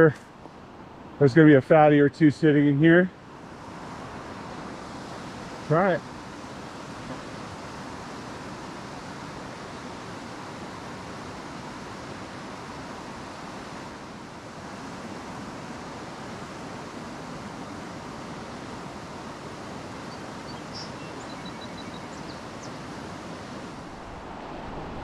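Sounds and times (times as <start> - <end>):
faint high chirps: 20.1 - 22.8.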